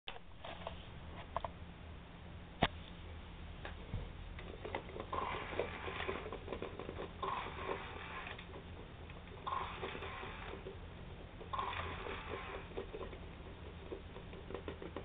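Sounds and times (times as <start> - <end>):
toy robot sounds: 7.2 - 8.4, 9.4 - 10.6, 11.5 - 12.8
hand rubbing and patting plastic: 12.6 - 15.0.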